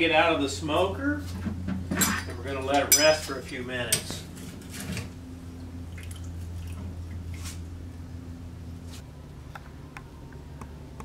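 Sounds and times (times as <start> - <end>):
steady low hum: 0.0 - 11.0
wet ticks of meat and dripping: 5.6 - 7.4.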